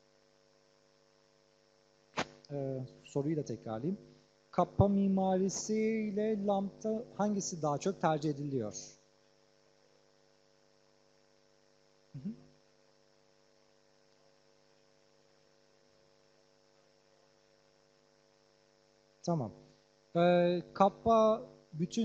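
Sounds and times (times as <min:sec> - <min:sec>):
electrical mains hum: 0:00.0 - 0:22.0.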